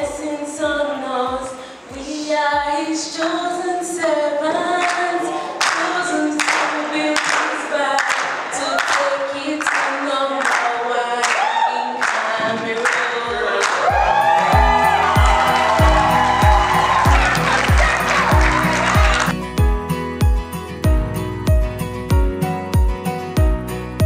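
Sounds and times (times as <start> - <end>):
woman singing unaccompanied: 0.0 - 13.8.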